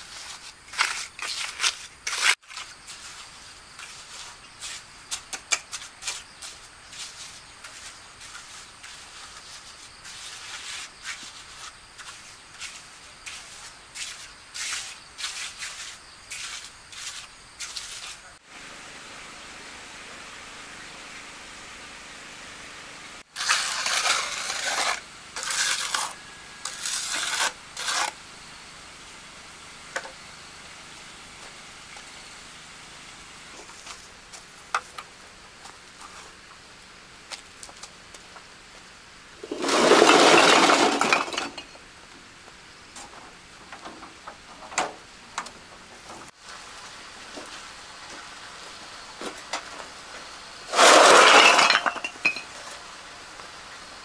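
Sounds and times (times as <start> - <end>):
trowel scraping mortar: 0.0 - 2.7, 23.3 - 28.2, 50.7 - 52.0.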